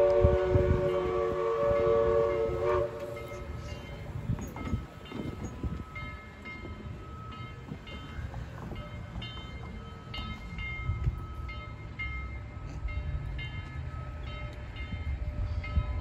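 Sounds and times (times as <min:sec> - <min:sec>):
train rumbling: 0:00.0 - 0:16.0.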